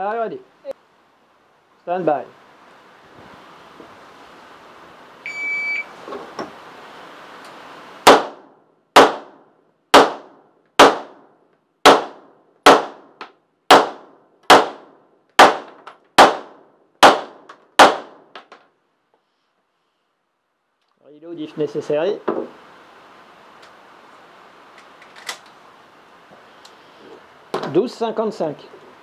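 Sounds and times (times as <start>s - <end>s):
shot timer beep: 5.2s - 5.9s
handgun shots: 8.1s - 8.4s, 9.0s - 9.3s, 10.0s - 11.2s, 13.7s - 14.8s, 15.4s - 18.2s.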